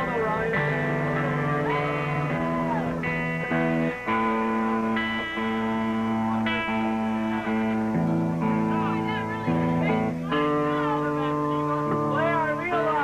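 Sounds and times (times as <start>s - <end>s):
electric guitar chords: 0.0s - 13.0s.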